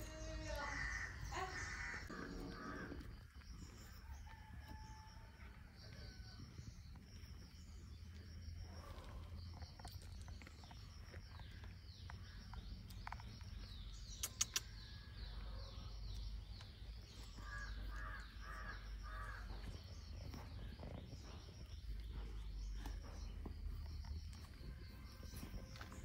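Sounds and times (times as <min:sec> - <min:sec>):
small birds chirping: 0:00.0 - 0:26.0
crow cawing: 0:00.7 - 0:02.8, 0:17.4 - 0:19.4
sharp clicks: 0:14.1 - 0:14.8.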